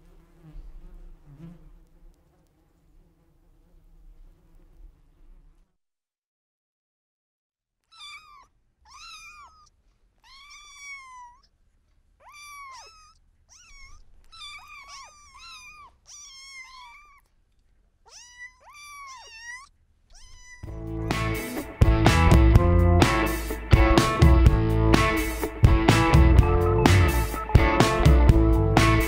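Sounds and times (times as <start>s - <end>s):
kitten mewing: 7.8s - 11.6s, 12.2s - 17.3s, 18.0s - 21.2s.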